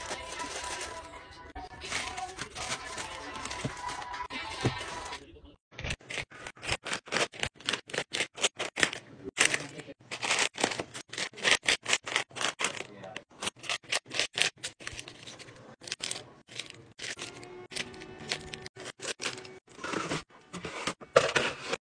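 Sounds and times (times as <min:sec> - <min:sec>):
plastic wrappers crinkling: 0:00.0 - 0:05.2, 0:14.5 - 0:19.8.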